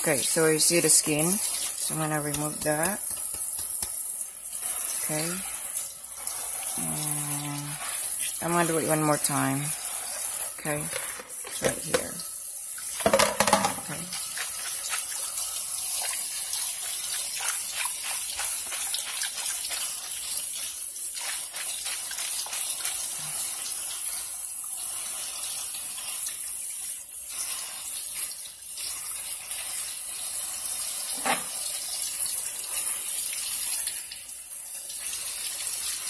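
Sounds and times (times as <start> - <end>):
small ticks and patters: 3.0 - 4.1
tap water splashing into sink: 10.7 - 15.1.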